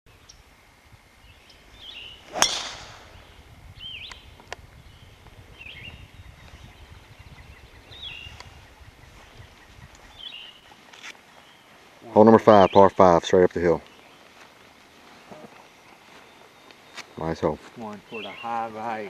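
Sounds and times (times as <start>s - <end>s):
bird chirping: 1.2s - 13.0s, 15.8s - 19.0s
golf club striking ball: 2.3s - 3.4s.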